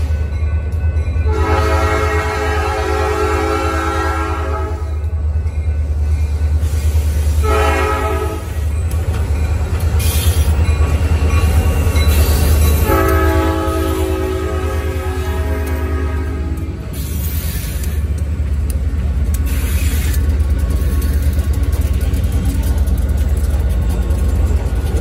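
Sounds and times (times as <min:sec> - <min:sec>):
diesel locomotives rumbling: 0:00.0 - 0:25.0
train air horn blasts: 0:01.3 - 0:05.0, 0:07.4 - 0:08.6, 0:12.8 - 0:17.0.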